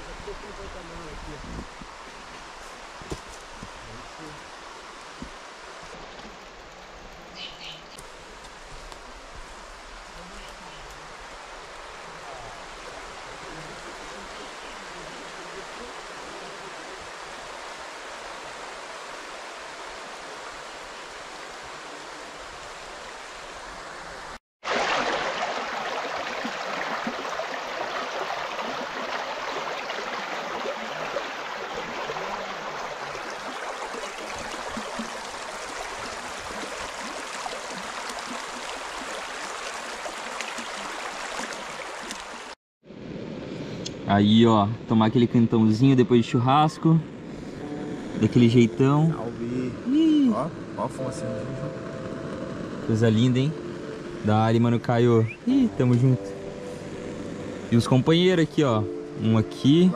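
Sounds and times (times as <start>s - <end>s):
river water rushing over stones: 9.8s - 42.6s.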